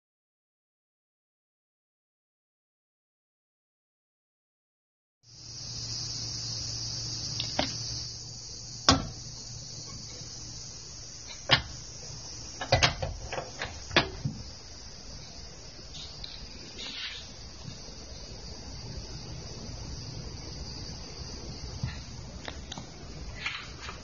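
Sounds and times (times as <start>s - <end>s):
insects trilling: 5.3s - 24.0s.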